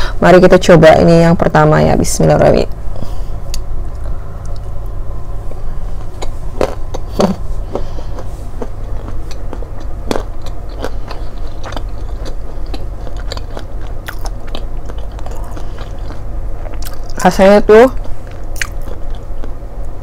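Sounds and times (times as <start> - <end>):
steady low hum: 0.0 - 20.0
almond crunching: 3.5 - 20.0
close chewing: 6.0 - 17.2, 18.0 - 19.6.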